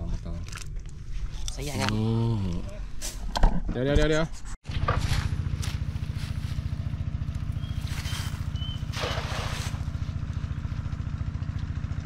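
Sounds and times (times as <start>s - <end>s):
small engine throbbing: 4.7s - 12.0s
net swishing and splashing: 7.8s - 10.0s.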